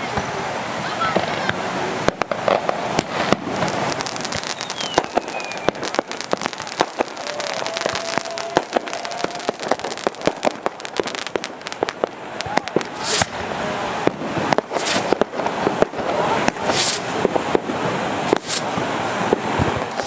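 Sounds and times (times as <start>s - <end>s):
fireworks bangs and crackling: 0.0s - 20.0s
falling firework whistle: 3.0s - 13.4s, 14.5s - 17.2s, 18.3s - 18.8s.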